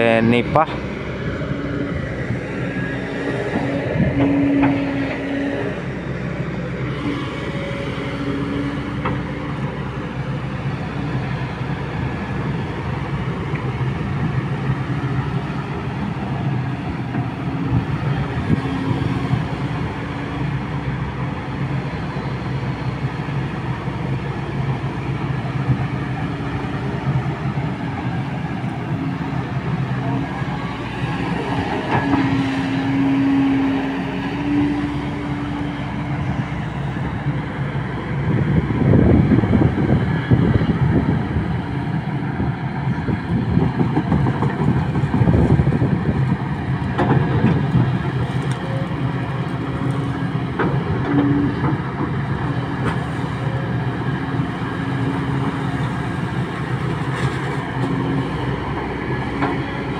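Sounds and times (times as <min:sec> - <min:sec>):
excavator diesel engine: 0:00.0 - 0:59.9.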